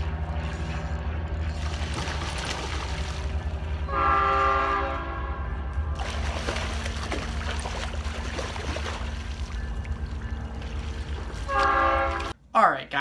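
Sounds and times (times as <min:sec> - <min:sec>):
low rumble: 0:00.0 - 0:12.4
fish splashing in water: 0:01.5 - 0:03.4, 0:06.0 - 0:09.6
train horn chord: 0:03.7 - 0:06.0, 0:11.3 - 0:12.4.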